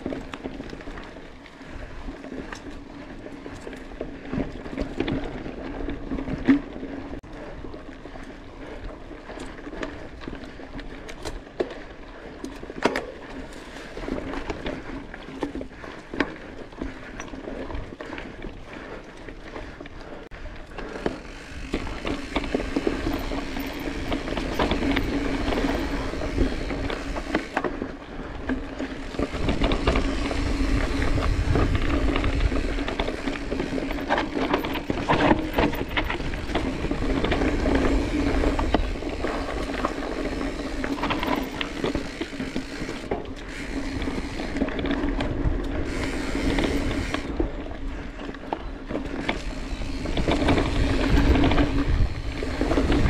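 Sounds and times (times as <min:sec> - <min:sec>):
bike rattles and clicks: 0:00.0 - 0:53.0
wind buffeting: 0:20.3 - 0:53.0.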